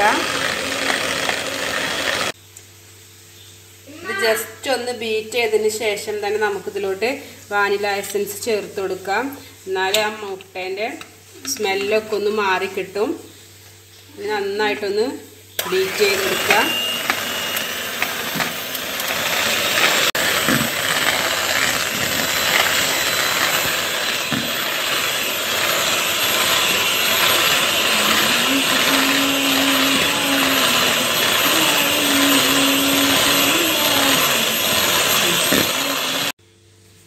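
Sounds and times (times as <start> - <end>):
electric hand mixer whirring: 0.0 - 2.4, 15.6 - 36.4.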